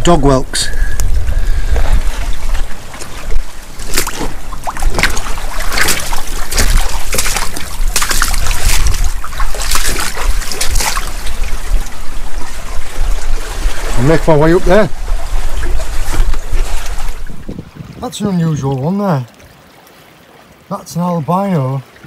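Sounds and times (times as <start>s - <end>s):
wind buffeting microphone: 0.0s - 18.8s
boots splashing through water: 1.7s - 17.6s.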